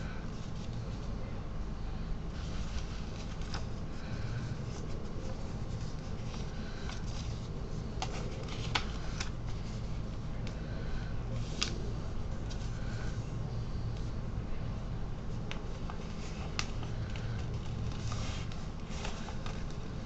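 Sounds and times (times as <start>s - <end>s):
steady low hum: 0.0s - 20.0s
paper rustling and crackling: 2.4s - 10.6s, 11.3s - 13.2s, 15.2s - 20.0s.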